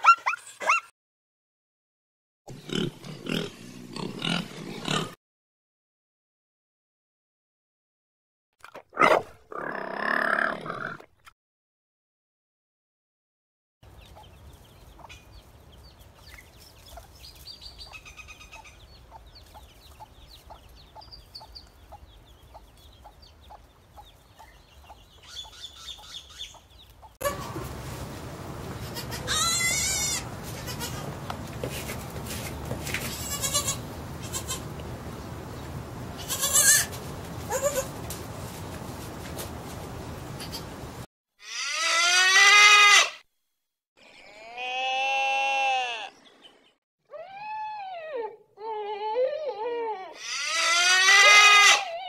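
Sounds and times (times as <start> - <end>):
chicks peeping: 14.0 - 27.6
goat kid bleating: 28.8 - 31.1, 33.0 - 34.7, 36.2 - 37.9, 41.4 - 43.2, 44.0 - 46.1, 50.1 - 52.0.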